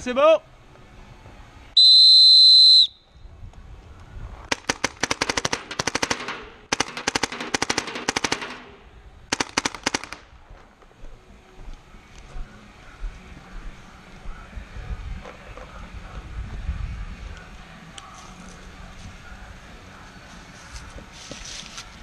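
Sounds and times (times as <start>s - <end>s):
paintball marker rapid firing: 4.5s - 10.3s.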